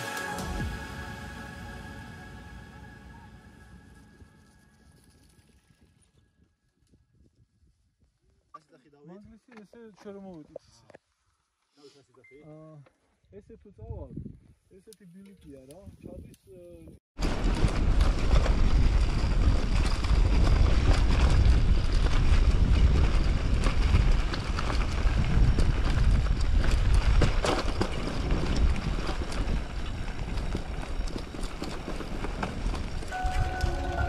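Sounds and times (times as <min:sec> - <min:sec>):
background music: 0:00.0 - 0:04.1, 0:33.1 - 0:34.0
wind buffeting microphone: 0:13.4 - 0:14.6, 0:15.8 - 0:34.0
bike rattling and clicking: 0:17.2 - 0:33.8.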